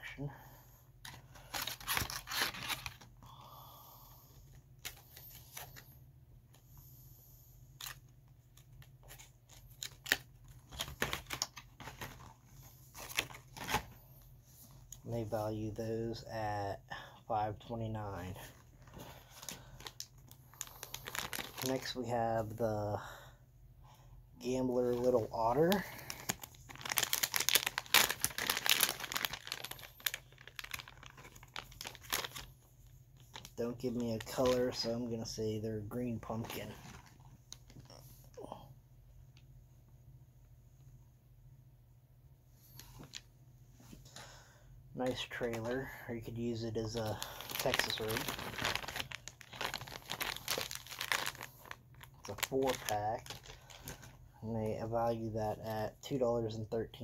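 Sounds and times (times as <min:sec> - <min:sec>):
plastic package crinkling: 0:01.0 - 0:03.2, 0:07.8 - 0:14.0, 0:18.2 - 0:22.0, 0:24.8 - 0:38.4, 0:45.0 - 0:54.5.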